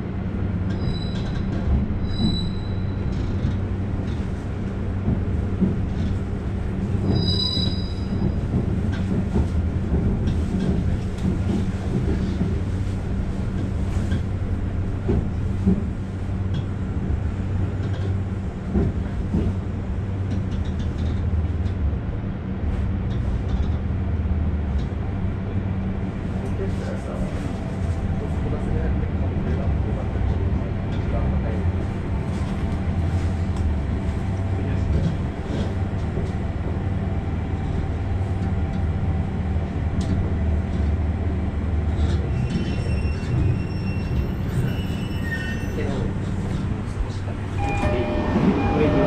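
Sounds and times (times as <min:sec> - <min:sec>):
railcar rumble and hum: 0:00.0 - 0:49.0
train engine drone: 0:00.0 - 0:49.0.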